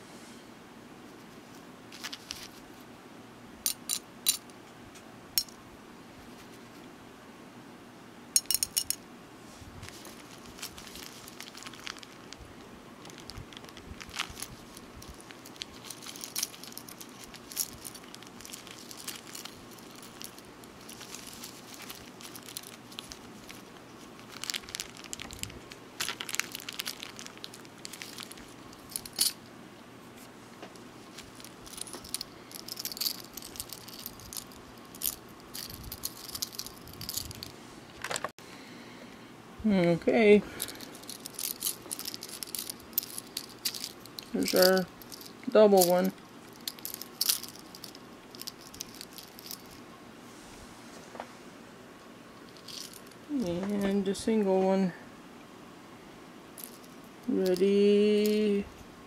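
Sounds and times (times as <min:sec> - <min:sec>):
plastic packet rustling: 0:01.9 - 0:02.6, 0:09.8 - 0:29.4, 0:31.0 - 0:38.3, 0:40.6 - 0:49.8.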